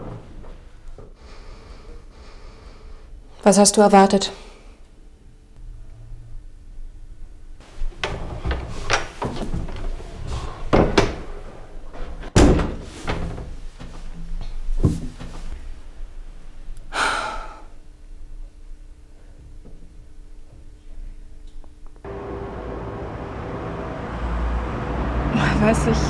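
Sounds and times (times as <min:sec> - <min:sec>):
knocks and rustles: 0:07.6 - 0:15.6
door slamming: 0:12.4 - 0:13.4.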